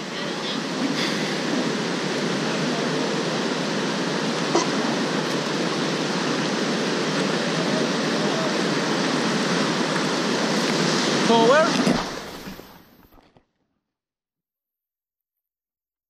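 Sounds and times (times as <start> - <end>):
river rapids rushing: 0.0 - 12.9.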